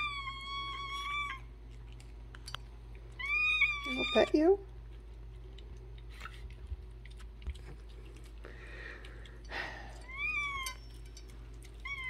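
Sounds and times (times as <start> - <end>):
cat meowing: 0.0 - 1.5, 3.2 - 4.3.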